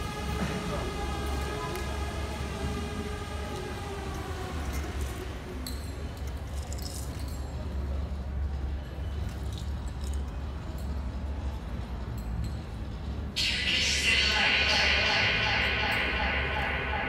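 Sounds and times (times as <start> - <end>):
steady low hum: 13.3 - 17.0.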